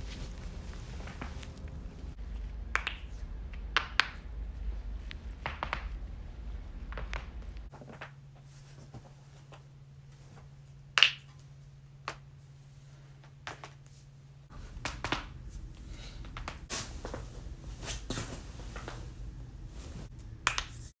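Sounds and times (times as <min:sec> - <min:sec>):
knuckles cracking: 0:16.2 - 0:16.6.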